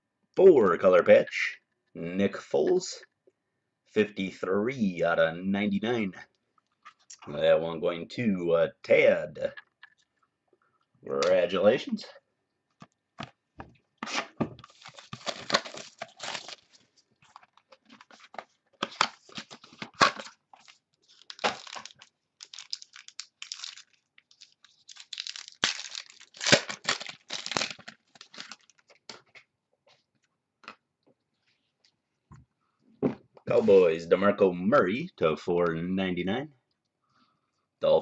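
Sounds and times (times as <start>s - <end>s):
wrapper tearing and crinkling: 14.6s - 18.2s, 18.8s - 29.0s.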